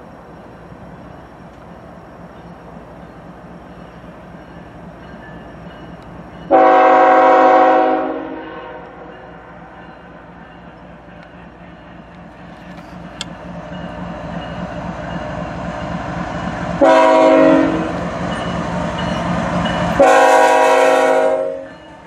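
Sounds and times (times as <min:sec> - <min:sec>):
locomotive horn blast: 0:06.4 - 0:09.4, 0:16.8 - 0:18.0, 0:19.8 - 0:21.8.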